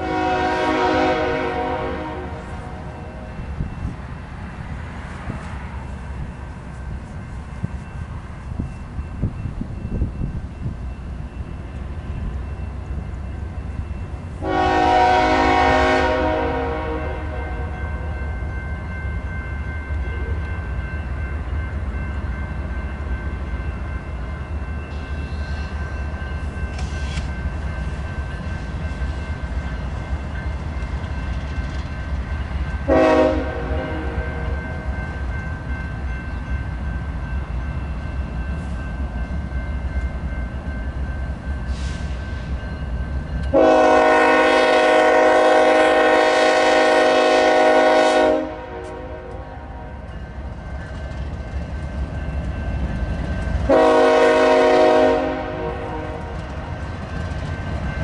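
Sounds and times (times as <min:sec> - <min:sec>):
locomotive air horn blasts: 0:00.0 - 0:03.3, 0:14.4 - 0:17.8, 0:32.8 - 0:34.6, 0:43.5 - 0:50.0, 0:53.7 - 0:56.4.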